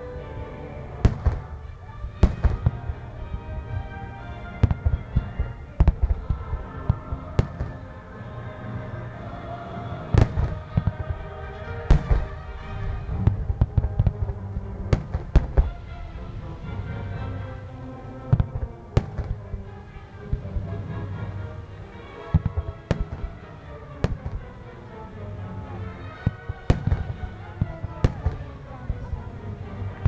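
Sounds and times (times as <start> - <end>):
music playing: 0.0 - 30.0
fireworks booming: 1.0 - 7.8, 10.1 - 16.1, 18.2 - 20.9, 22.2 - 24.6, 26.2 - 29.2.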